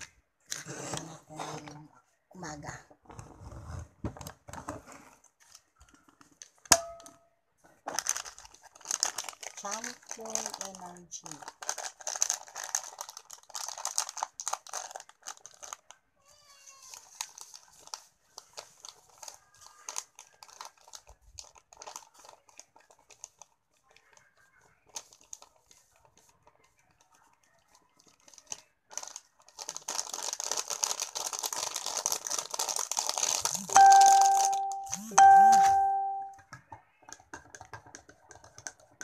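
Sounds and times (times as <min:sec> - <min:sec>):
foil sachet crinkling: 0:07.8 - 0:36.1.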